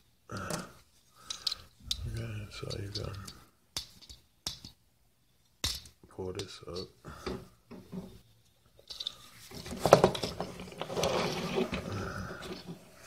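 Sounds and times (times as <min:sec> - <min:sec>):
plastic parts clicking and rattling: 0:00.3 - 0:04.8, 0:08.8 - 0:13.0
plastic scraping: 0:08.9 - 0:13.0.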